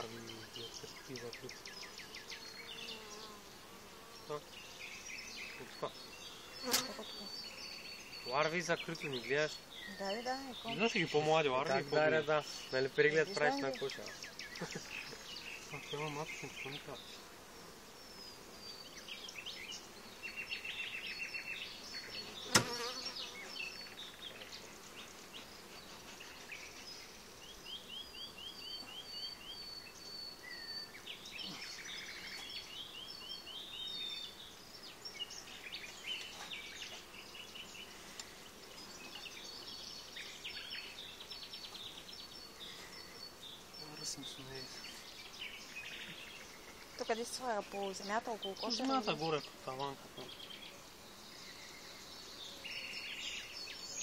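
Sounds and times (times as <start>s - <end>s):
bees buzzing: 0.0s - 54.0s
birds chirping: 0.0s - 54.0s.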